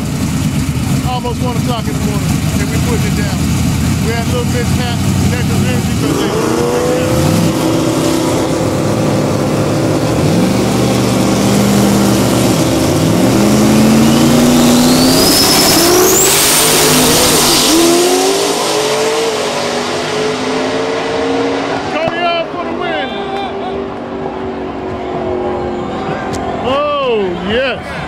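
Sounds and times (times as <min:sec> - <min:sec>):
race car engines revving: 0:00.0 - 0:28.0
high-pitched whine: 0:05.5 - 0:20.8.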